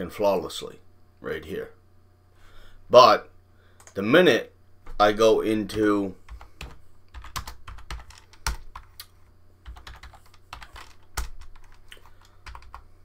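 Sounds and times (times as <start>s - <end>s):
low steady hum: 0.0s - 13.0s
typing on computer keyboard: 5.7s - 9.0s, 9.6s - 12.9s.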